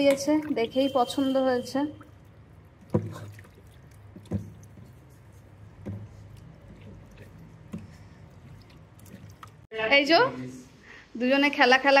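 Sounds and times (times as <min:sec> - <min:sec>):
wet handling of meat: 0:02.0 - 0:09.7.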